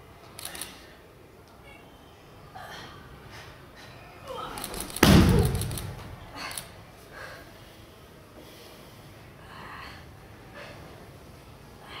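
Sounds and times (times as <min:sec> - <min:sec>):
soft puffs of breath: 0:06.4 - 0:11.0.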